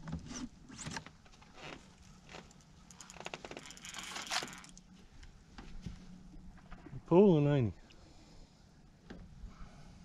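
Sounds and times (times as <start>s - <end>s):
faint steady low hum: 0.0s - 10.0s
fishing reel rattling clicks: 2.9s - 4.8s.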